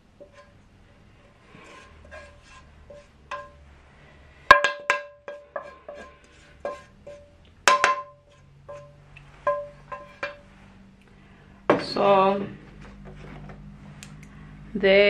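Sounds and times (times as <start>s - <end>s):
serving spoon striking a dish: 6.7s - 10.4s.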